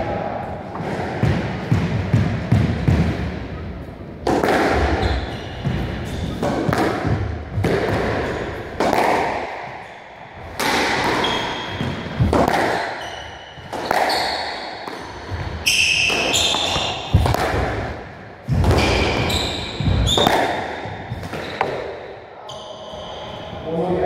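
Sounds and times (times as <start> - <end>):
squash ball cracking off rackets: 4.2 - 9.8, 10.4 - 22.0
shoe squeaks on wooden floor: 13.0 - 14.6, 15.6 - 17.1, 18.8 - 20.3.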